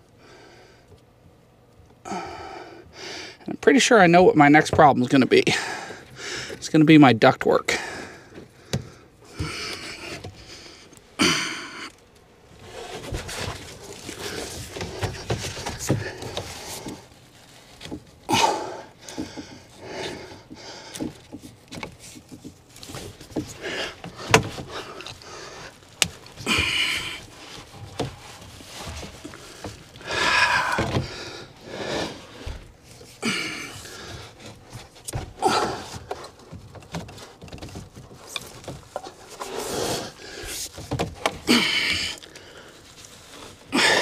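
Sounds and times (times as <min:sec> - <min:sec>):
man breathing: 0:00.1 - 0:01.0, 0:02.0 - 0:03.5, 0:05.5 - 0:06.6, 0:07.7 - 0:12.0, 0:12.7 - 0:21.6, 0:22.8 - 0:36.5, 0:39.0 - 0:44.0
rustling and scuffing: 0:21.2 - 0:30.1.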